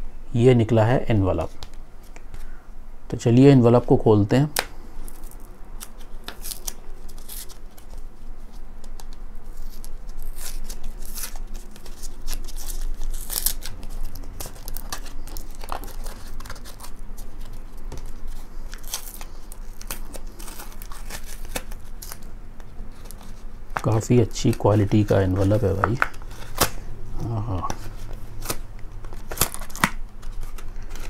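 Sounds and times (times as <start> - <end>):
paper envelope tearing: 5.1 - 8.0, 9.5 - 22.3, 22.9 - 31.0.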